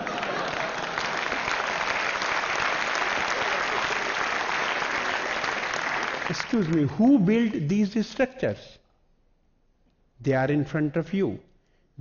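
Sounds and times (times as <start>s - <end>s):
large audience applauding: 0.0s - 7.6s.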